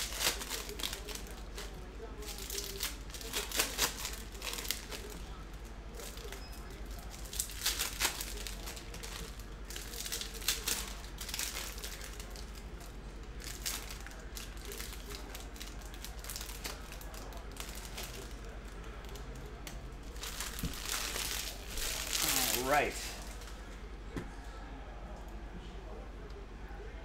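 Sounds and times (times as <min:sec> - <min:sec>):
foil wrappers crinkling: 0:00.0 - 0:23.7
trading cards rustling: 0:20.1 - 0:23.6.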